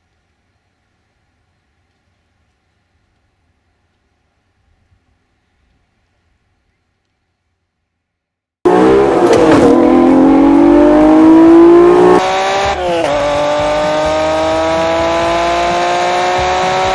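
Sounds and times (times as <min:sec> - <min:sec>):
car engine accelerating hard: 0:08.7 - 0:16.9.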